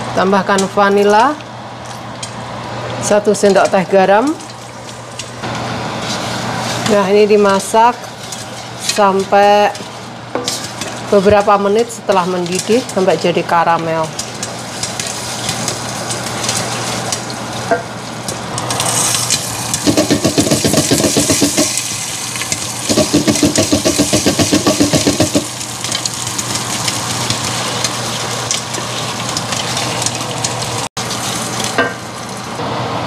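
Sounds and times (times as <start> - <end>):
popcorn popping in a pot: 10.4 - 32.1
pot rattling on stovetop: 19.8 - 21.8, 22.9 - 25.5.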